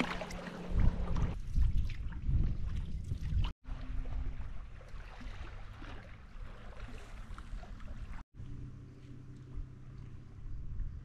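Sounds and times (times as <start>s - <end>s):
water splashing around canoe: 0.0s - 8.2s.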